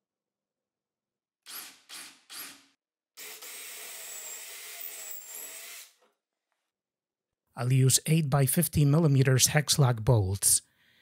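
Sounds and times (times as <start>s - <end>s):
cordless drill boring into wood: 1.5s - 6.0s.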